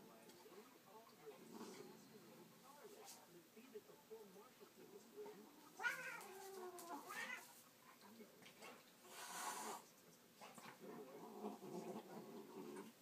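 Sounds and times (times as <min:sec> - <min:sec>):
cat hissing: 0:05.8 - 0:07.5, 0:09.0 - 0:09.9
cat yowling: 0:05.8 - 0:07.5
low growling: 0:10.8 - 0:13.0.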